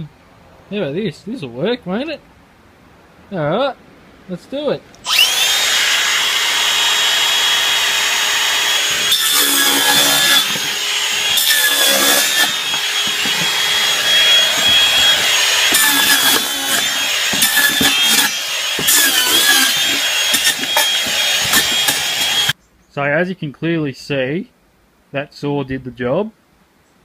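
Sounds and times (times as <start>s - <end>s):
circular saw whining: 5.0s - 22.6s
saw blade cutting cardboard: 5.1s - 22.6s.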